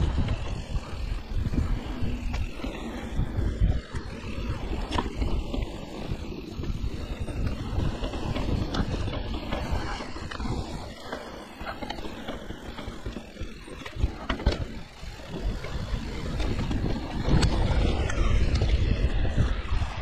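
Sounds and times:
bike rattling over bumps: 0.0 - 20.0
tyres rolling on dirt: 0.0 - 20.0
wind on microphone: 0.0 - 20.0.

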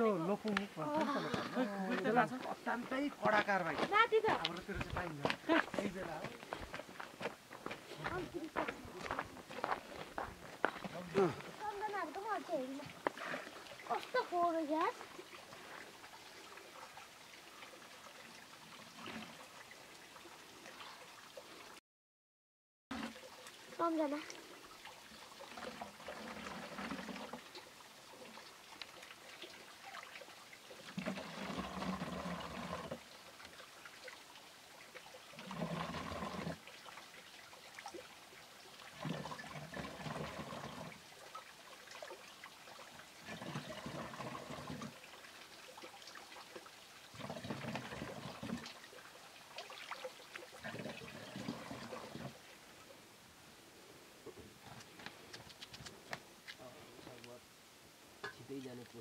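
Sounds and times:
water pouring into plastic jerrycan: 18.2 - 19.8, 22.9 - 24.5, 25.1 - 28.2, 29.4 - 34.2, 35.4 - 36.8, 38.8 - 52.4.

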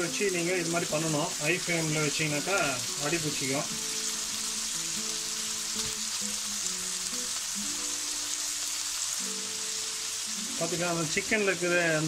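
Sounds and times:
chicken sizzling in oil: 0.0 - 12.0
soft background music: 0.0 - 12.0.

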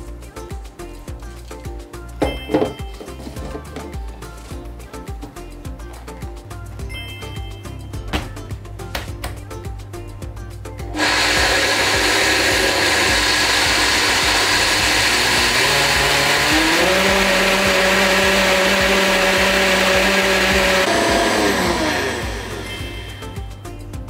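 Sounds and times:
blender motor grinding: 10.9 - 23.5.

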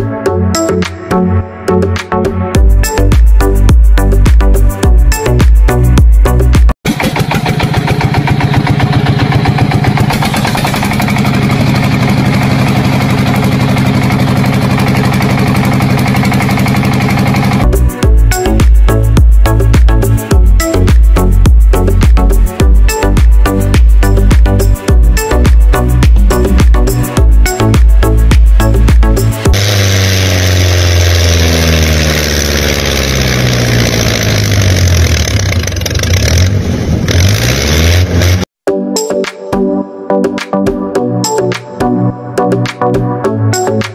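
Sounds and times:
tractor engine chugging: 6.9 - 37.5.

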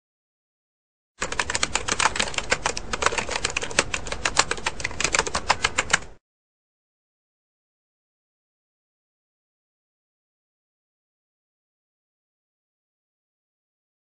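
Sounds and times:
typewriter keystroke clicks: 1.2 - 6.2.

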